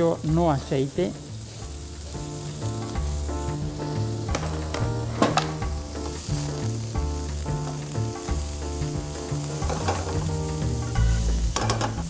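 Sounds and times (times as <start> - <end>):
background music with bass line: 0.0 - 12.0
onion and garlic sizzling in oil: 0.0 - 12.0.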